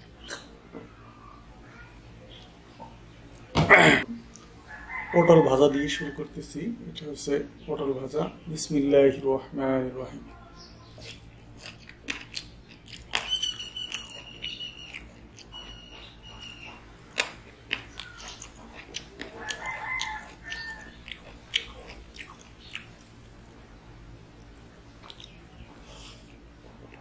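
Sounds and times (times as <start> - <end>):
man chewing food: 3.2 - 5.0, 10.8 - 27.0
wet mouth clicks and lip smacks: 11.0 - 15.6.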